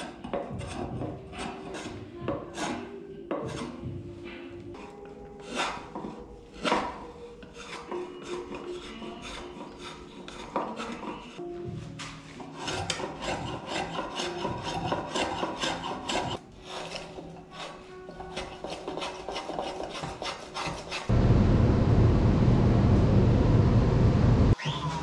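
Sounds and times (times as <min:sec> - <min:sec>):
hand tool scraping wood: 0:00.0 - 0:21.1
loud steady noise: 0:21.1 - 0:24.6.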